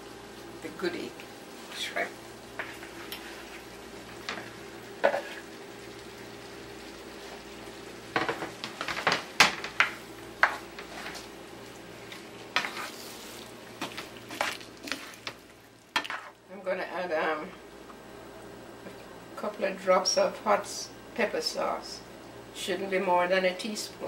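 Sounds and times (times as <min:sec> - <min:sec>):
shrimp sizzling in a frying pan: 0:00.0 - 0:16.5
spatula scraping a pan: 0:02.6 - 0:03.7, 0:05.0 - 0:05.5, 0:12.5 - 0:15.4, 0:16.0 - 0:16.4.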